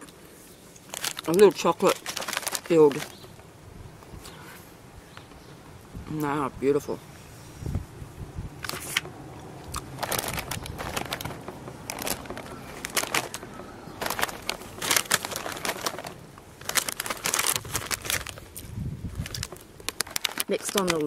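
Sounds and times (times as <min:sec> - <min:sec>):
plastic packet crinkling: 0:00.8 - 0:03.3, 0:09.7 - 0:21.0.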